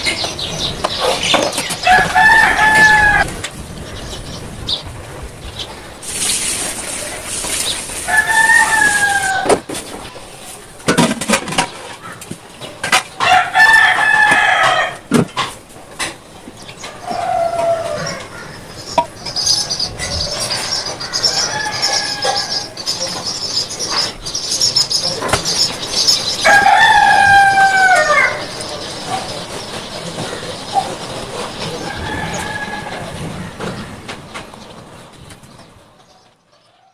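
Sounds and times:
drawn-out animal calls: 0:16.8 - 0:34.1
high rapid chirping: 0:18.6 - 0:26.5.

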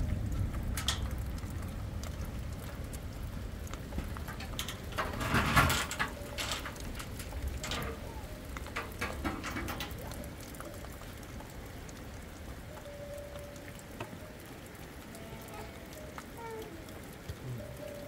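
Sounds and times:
steady rain: 0:00.0 - 0:18.0
drops pattering: 0:03.6 - 0:11.0.

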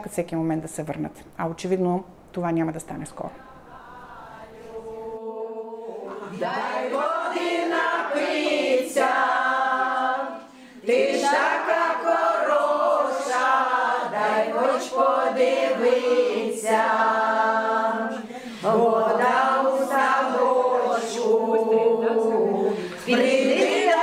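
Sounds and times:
women singing unaccompanied: 0:03.2 - 0:24.0.

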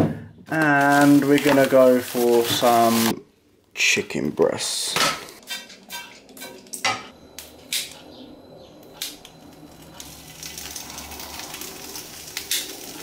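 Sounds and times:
plastic packaging crinkling: 0:00.5 - 0:03.1, 0:09.7 - 0:13.0
meat sizzling in a frying pan: 0:10.0 - 0:13.0.

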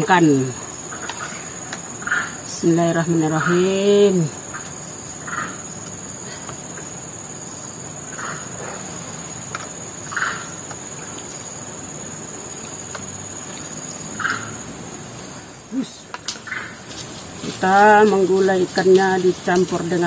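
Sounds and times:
insects droning high-pitched: 0:00.0 - 0:20.0
short calls: 0:12.2 - 0:20.0.

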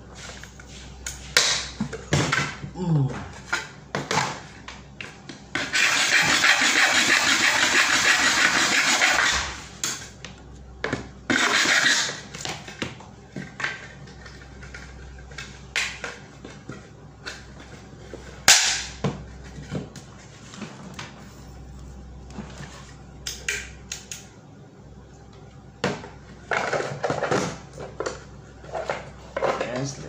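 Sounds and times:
file rasping on plastic: 0:05.6 - 0:09.4.

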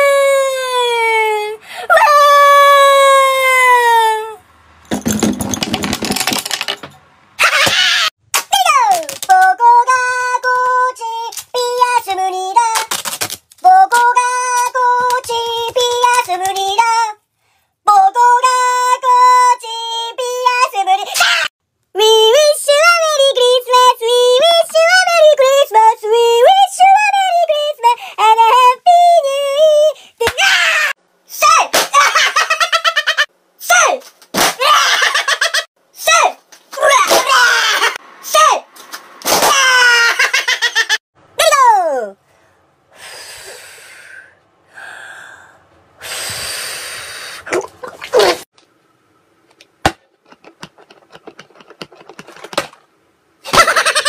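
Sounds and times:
high-pitched person singing: 0:00.0 - 0:04.4, 0:08.6 - 0:13.0, 0:13.6 - 0:17.2
containers tapping and clicking: 0:49.5 - 0:52.8.

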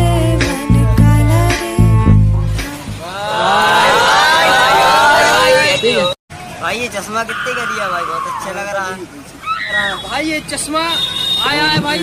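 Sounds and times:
music with heavy bass line: 0:00.0 - 0:03.0.

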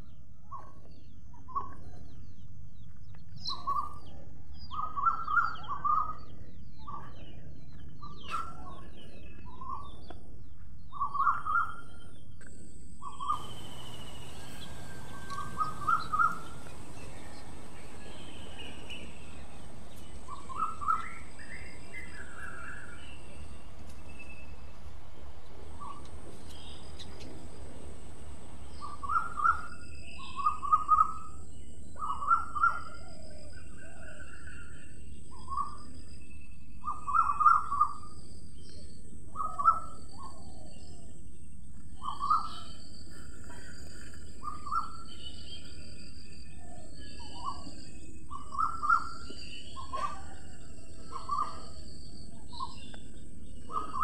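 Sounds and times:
birds calling: 0:00.0 - 0:54.0
steady high-pitched hiss: 0:11.9 - 0:54.0
high chirps: 0:13.2 - 0:31.2.

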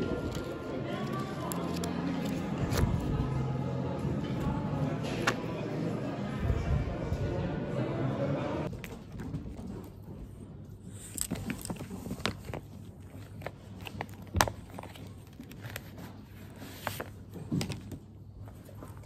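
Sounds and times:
paper cards rustling: 0:00.0 - 0:03.2, 0:11.0 - 0:18.0.

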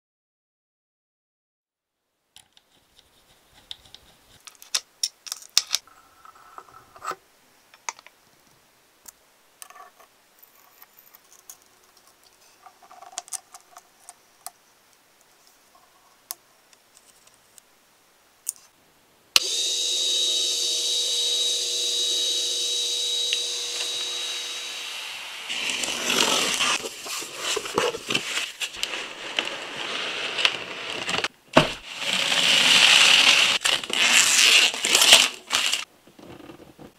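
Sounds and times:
metal parts clicking: 0:04.4 - 0:05.9
small motor whining: 0:19.4 - 0:26.8
plastic packaging crackling: 0:25.5 - 0:35.9.

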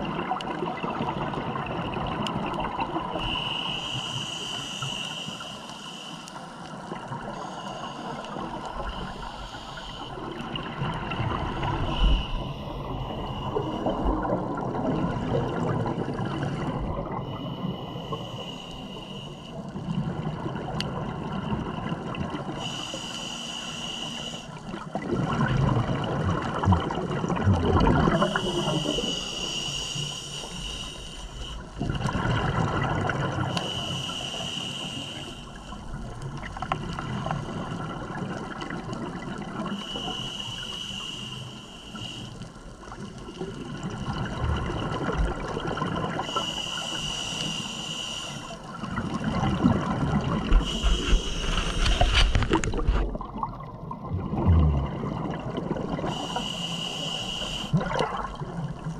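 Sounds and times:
scuba regulator inhalation hiss: 0:03.2 - 0:10.4, 0:11.8 - 0:14.1, 0:17.2 - 0:19.7, 0:22.5 - 0:24.8, 0:28.1 - 0:31.8, 0:33.4 - 0:36.0, 0:39.6 - 0:42.8, 0:46.0 - 0:48.8, 0:50.4 - 0:52.5, 0:56.0 - 0:58.0
gurgling bubbly exhalations: 0:24.9 - 0:29.0, 0:31.8 - 0:33.5, 0:43.5 - 0:46.3, 0:48.8 - 0:56.2, 0:57.8 - 0:58.9.

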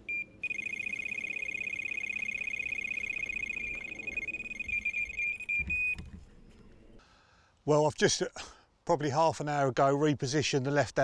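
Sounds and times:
bite alarm fast beeping: 0:00.0 - 0:06.1.

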